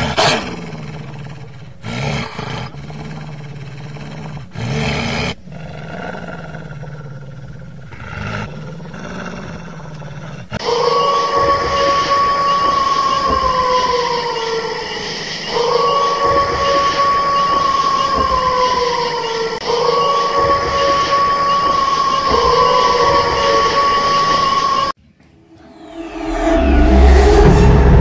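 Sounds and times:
low roar sound effect: 0.0s - 28.0s
loud steady whistle: 10.6s - 28.0s.

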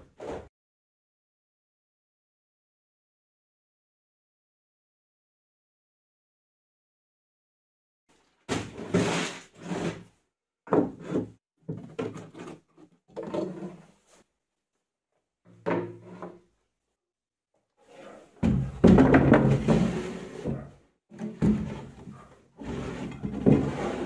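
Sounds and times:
wood scraping and sliding: 8.5s - 14.3s, 15.5s - 16.4s, 17.8s - 24.0s.

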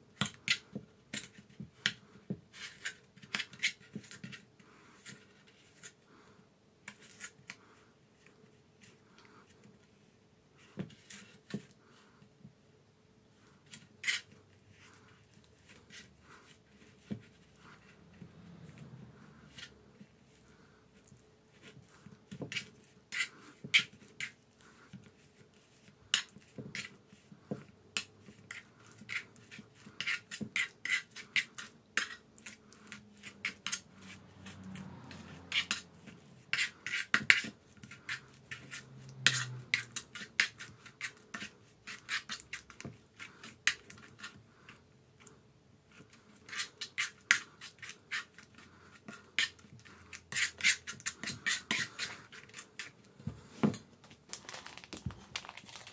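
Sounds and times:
metal spoon scraping frying pan: 30.0s - 42.8s, 46.4s - 52.9s.

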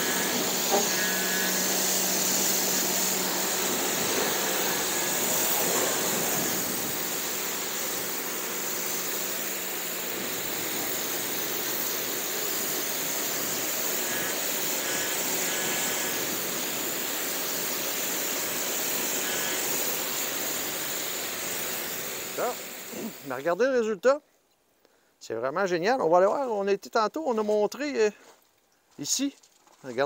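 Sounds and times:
pressure washer jet hissing: 0.0s - 23.5s.

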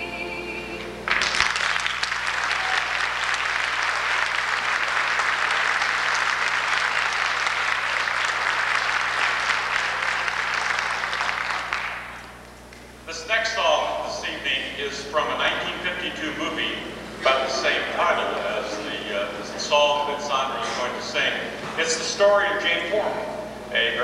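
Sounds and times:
audience applause: 1.0s - 12.4s.

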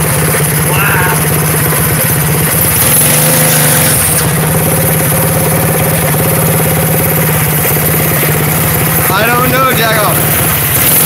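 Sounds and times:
small engine running under throttle: 0.0s - 11.0s
tire spinning on concrete: 0.0s - 11.0s.

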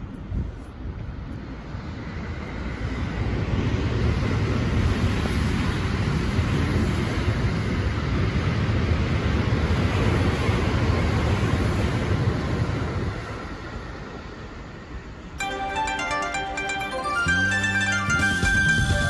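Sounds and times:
train passing with rail noise: 0.0s - 19.0s.

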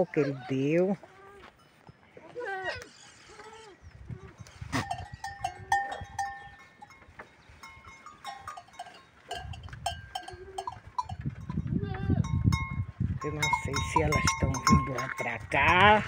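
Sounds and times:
sharp clacks of hooves: 4.2s - 16.0s
bell-like clinks: 7.6s - 11.2s, 12.2s - 15.9s.

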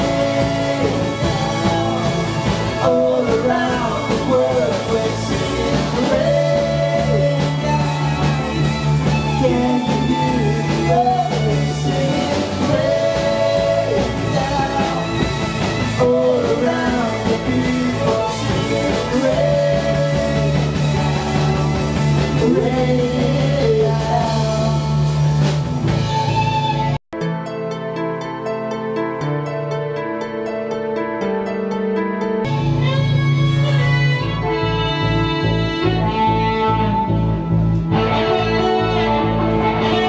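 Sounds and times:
person singing: 0.0s - 25.4s
live band playing slow song: 0.0s - 40.0s.

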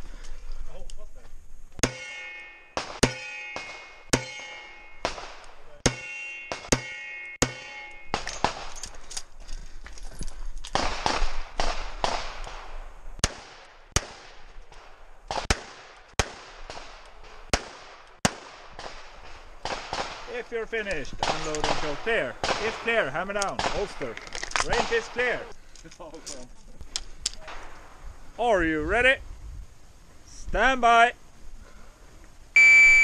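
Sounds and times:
steel targets clanging: 1.8s - 5.2s, 5.8s - 8.9s.

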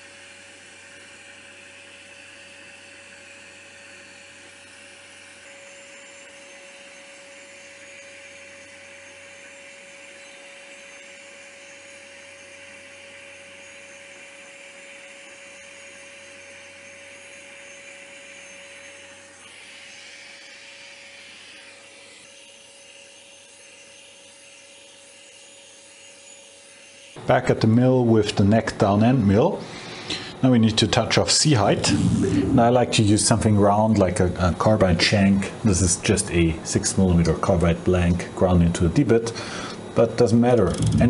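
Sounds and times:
shop vac running: 0.0s - 41.0s
grinding wheel hissing on metal: 16.7s - 27.0s, 39.2s - 41.0s
grinding spindle humming: 29.0s - 41.0s.

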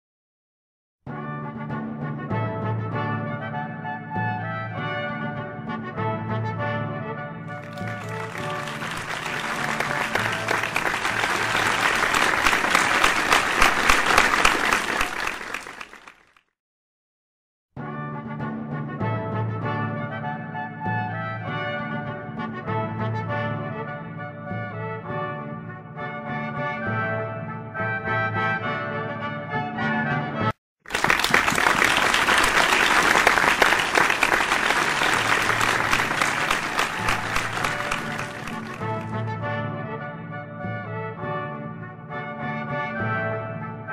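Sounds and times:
audience applause: 7.6s - 16.4s, 30.9s - 39.2s.

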